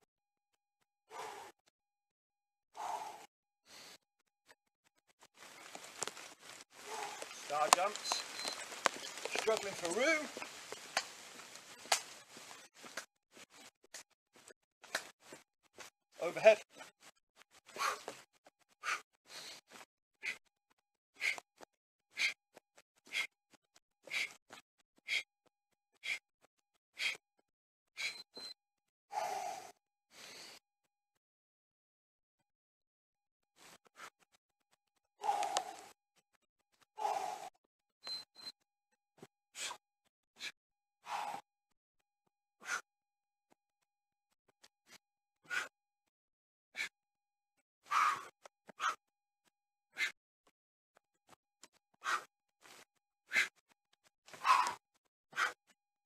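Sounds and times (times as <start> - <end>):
man huffing breaths: 2.8 - 4.0, 6.8 - 8.2, 17.7 - 18.2, 18.8 - 20.4, 21.2 - 21.4, 24.1 - 24.4, 26.0 - 26.2, 27.0 - 27.2, 45.4 - 45.7, 47.8 - 49.0, 52.0 - 53.6, 54.3 - 55.6
feet landing ticks: 5.2 - 15.9
trainers scuffing on tarmac: 5.4 - 13.5.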